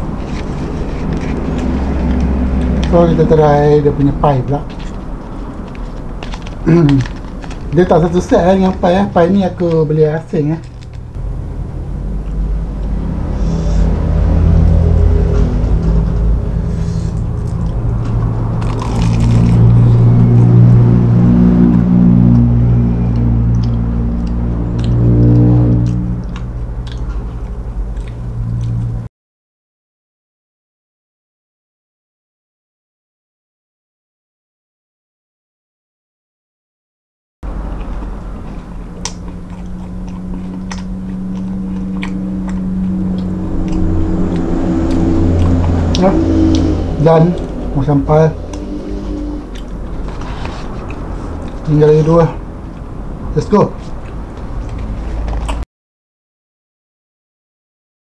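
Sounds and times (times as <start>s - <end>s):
crunchy chewing: 0.0s - 8.8s, 10.6s - 11.2s, 16.7s - 20.5s, 22.3s - 29.1s, 37.5s - 46.8s, 47.4s - 55.6s
steady low hum: 0.0s - 29.1s, 37.4s - 55.6s
flaky crust crackling: 0.2s - 11.2s, 18.6s - 20.0s
crunch of biting fried pie: 18.6s - 20.0s, 37.6s - 43.8s.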